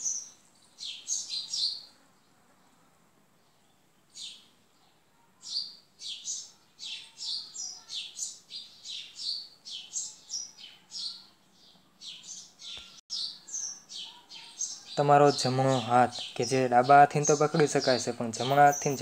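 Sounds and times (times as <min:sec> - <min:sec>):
small bird chirping: 0:00.0 - 0:02.8, 0:03.4 - 0:19.0.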